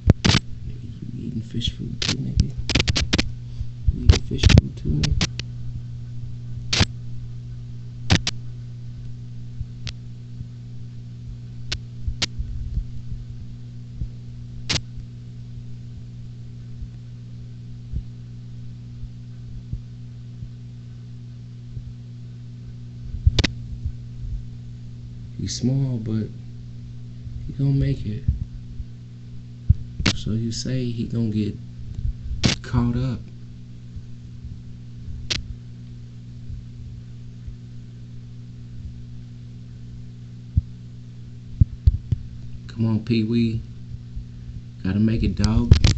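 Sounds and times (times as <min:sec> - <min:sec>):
sharp clicks: 0:00.0 - 0:00.4, 0:02.0 - 0:03.3, 0:04.1 - 0:05.5, 0:06.7 - 0:06.9, 0:08.1 - 0:08.4, 0:23.3 - 0:23.6, 0:32.4 - 0:32.7
low electrical hum: 0:00.0 - 0:45.9.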